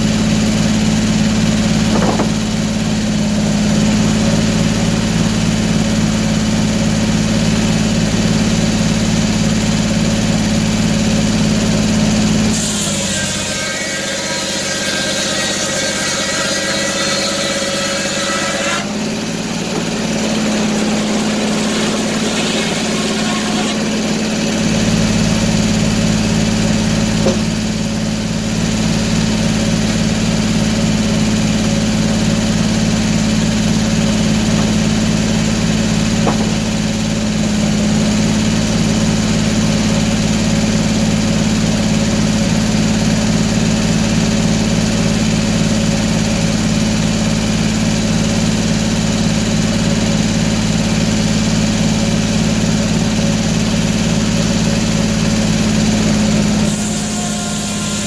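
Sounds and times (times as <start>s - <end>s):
sawmill engine humming: 0.0s - 58.0s
saw blade spinning: 18.0s - 24.8s.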